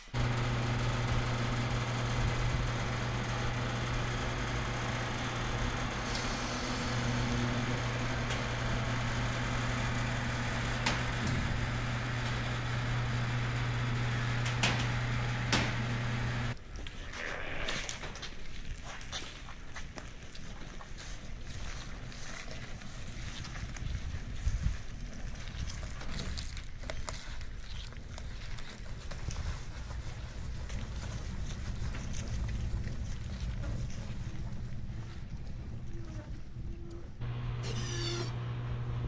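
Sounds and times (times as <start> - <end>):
electric door motor humming: 0.1 - 16.6, 37.2 - 39.0.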